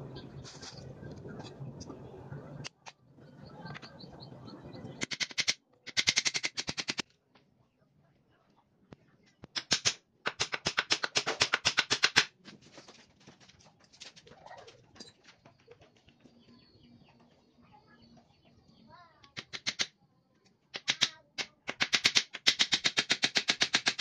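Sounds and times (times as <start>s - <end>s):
hammer tapping nails into wood: 20.8s - 24.0s.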